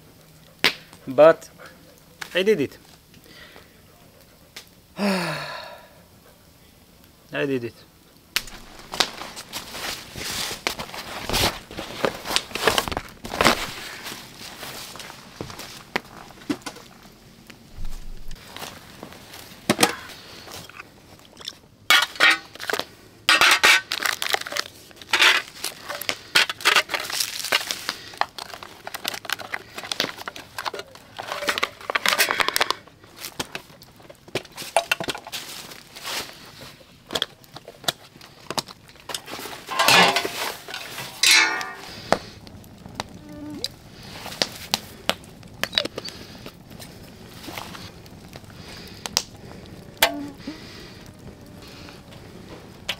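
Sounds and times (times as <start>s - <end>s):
plastic packaging rustling: 8.4s - 17.1s, 17.7s - 42.4s
metal tin and pans clinking: 39.7s - 41.9s.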